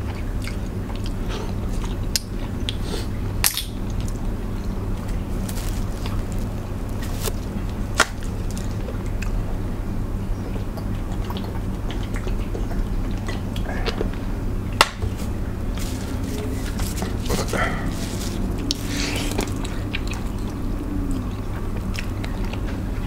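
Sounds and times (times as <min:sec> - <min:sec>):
eating sounds: 0:00.0 - 0:03.2, 0:03.9 - 0:23.0
low hum: 0:00.0 - 0:23.0
hands handling seafood: 0:05.2 - 0:07.4, 0:15.0 - 0:19.6.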